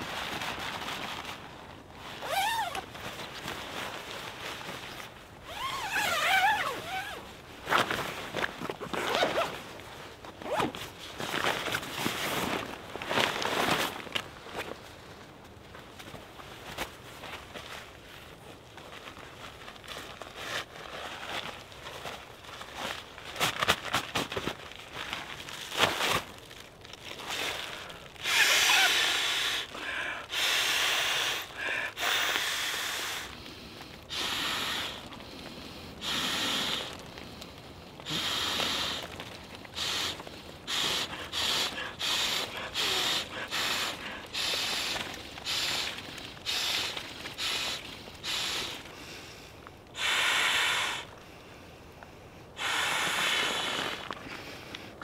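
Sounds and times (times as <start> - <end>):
tent fabric rustling: 0.0 - 29.7, 38.0 - 48.9.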